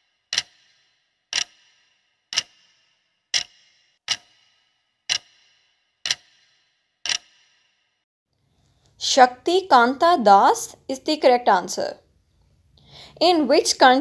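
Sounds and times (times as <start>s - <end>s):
clock ticking with ringing: 0.0s - 7.5s.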